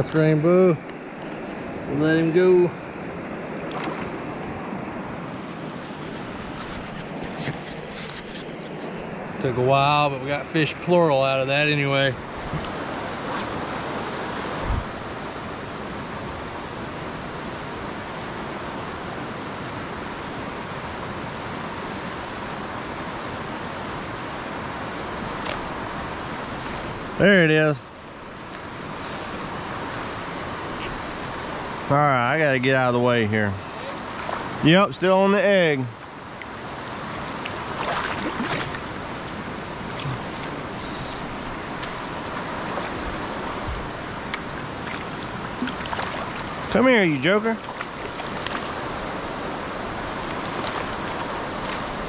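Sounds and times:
creek rushing: 0:00.0 - 0:52.0
brief water splashes: 0:03.6 - 0:04.1.

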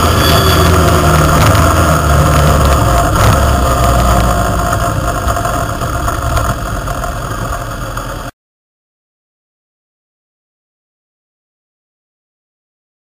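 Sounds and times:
motorcycle engine rumble: 0:00.0 - 0:08.3.

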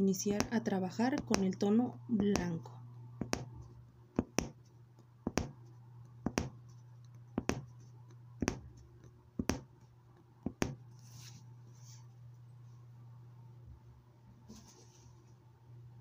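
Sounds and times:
punch needle popping through fabric: 0:00.4 - 0:01.6, 0:02.2 - 0:02.6, 0:03.2 - 0:04.6, 0:05.2 - 0:06.6, 0:07.4 - 0:07.7, 0:08.4 - 0:08.8, 0:09.4 - 0:09.8, 0:10.4 - 0:10.8.

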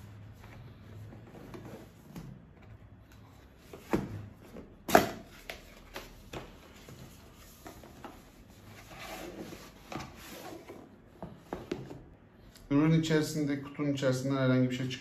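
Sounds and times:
cardboard rubbing and sliding: 0:06.7 - 0:10.9.

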